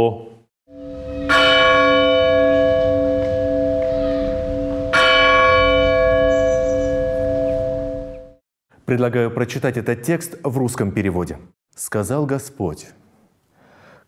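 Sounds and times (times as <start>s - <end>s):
bell ringing: 0.7s - 8.4s
held low chord: 0.7s - 8.4s.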